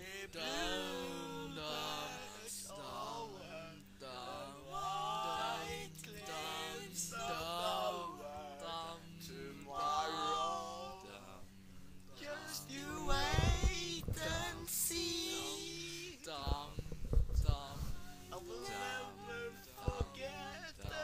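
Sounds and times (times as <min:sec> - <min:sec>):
man singing slow phrases: 0:12.1 - 0:16.8, 0:17.4 - 0:21.0.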